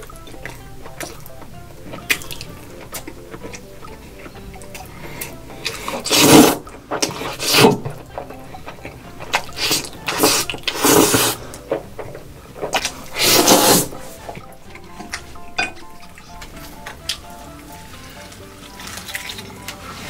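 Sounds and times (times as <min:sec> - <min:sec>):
person slurping noodles: 0:04.9 - 0:08.0, 0:08.7 - 0:11.6, 0:12.6 - 0:14.3.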